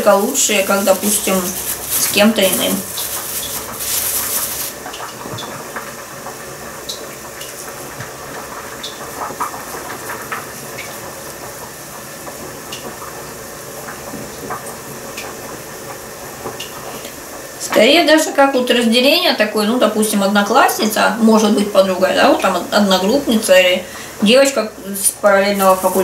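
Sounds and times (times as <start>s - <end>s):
hands patting minced meat: 0.0s - 4.8s
plastic bag rustling: 0.0s - 5.6s, 24.9s - 26.0s
steady hiss: 0.0s - 6.6s, 22.6s - 26.0s.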